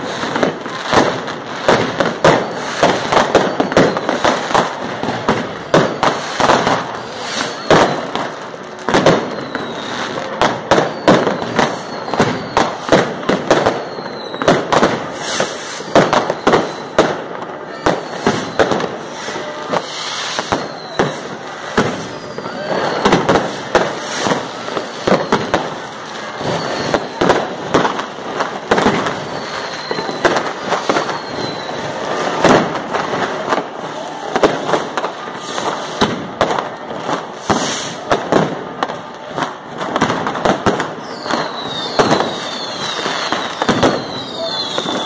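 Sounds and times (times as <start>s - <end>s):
fireworks bangs and crackling: 0.0s - 45.0s
firework whistle falling in pitch: 2.2s - 4.6s, 5.4s - 28.0s, 28.8s - 32.5s, 40.9s - 45.0s.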